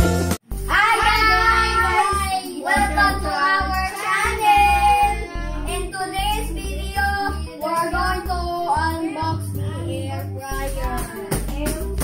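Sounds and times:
child singing: 0.7 - 12.0
music with bass beat: 10.6 - 12.0.

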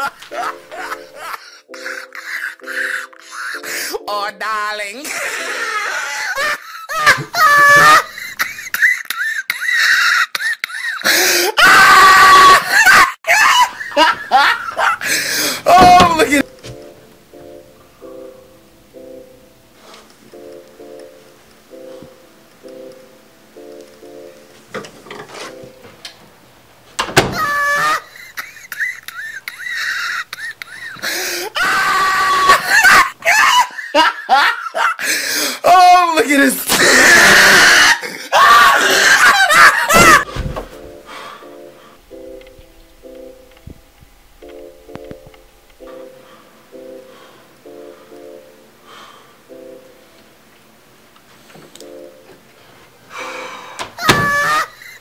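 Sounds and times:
person laughing and screaming: 0.0 - 3.7, 5.0 - 16.5, 27.3 - 36.1, 36.7 - 40.3, 54.0 - 55.0
person shrieking: 5.1 - 8.1, 11.2 - 14.1, 14.8 - 16.5, 27.3 - 28.1, 31.5 - 33.7, 35.6 - 40.3, 54.0 - 55.0.

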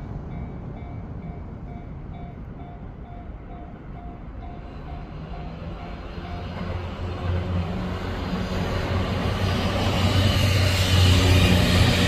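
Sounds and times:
level-crossing warning bell: 0.0 - 7.5
electric train passing: 0.0 - 12.0.

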